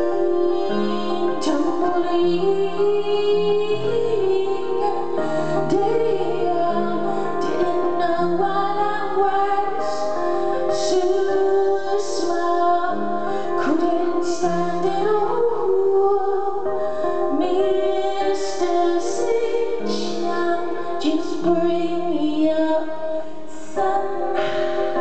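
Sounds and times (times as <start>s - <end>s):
piano and keyboard chords: 0.0s - 25.0s
woman singing slow song: 0.0s - 25.0s.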